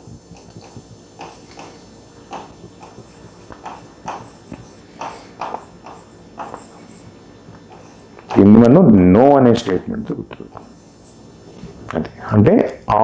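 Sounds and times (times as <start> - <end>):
marker pen scratching on whiteboard: 0.6 - 8.6.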